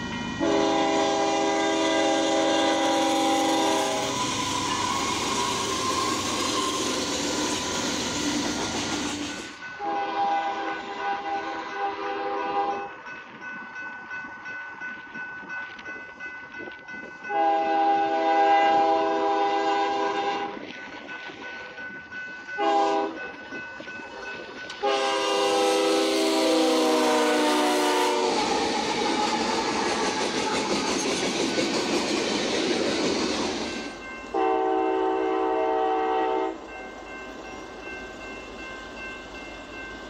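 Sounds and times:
freight train rumbling past: 0.0s - 16.3s, 17.1s - 40.0s
rail noise: 0.0s - 40.0s
locomotive air horns: 0.4s - 7.4s, 9.8s - 12.9s, 17.3s - 20.6s, 22.6s - 23.2s, 24.8s - 30.7s, 34.3s - 36.6s.

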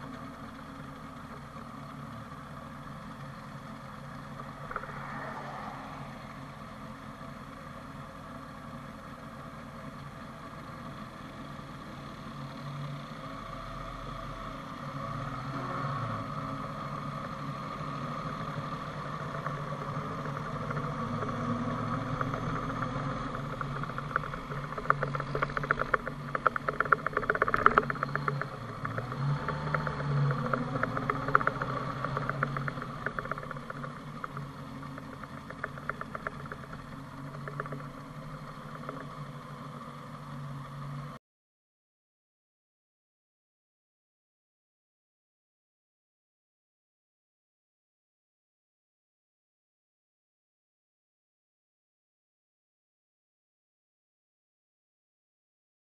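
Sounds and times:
motorcycle engine running: 0.0s - 41.2s
gravel rattling clicks: 4.2s - 6.0s, 17.2s - 40.8s.

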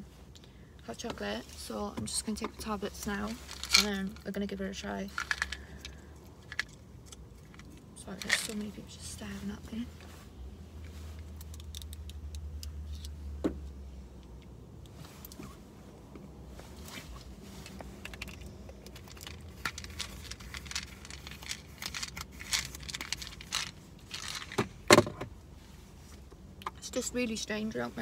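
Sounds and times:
small objects clicking and rattling: 3.3s - 4.3s, 5.1s - 8.7s, 11.2s - 13.1s, 17.7s - 24.6s.

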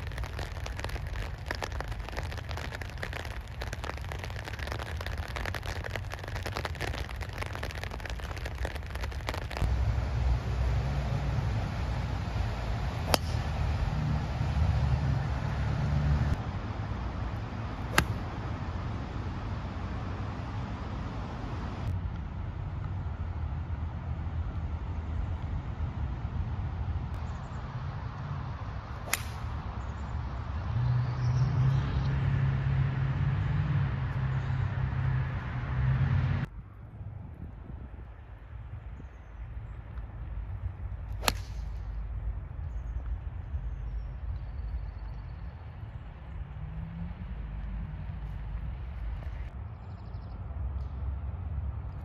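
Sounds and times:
steady low rumble: 0.0s - 30.6s
golf club striking ball: 13.0s - 13.6s, 17.9s - 18.4s, 29.0s - 29.6s, 41.1s - 41.8s.

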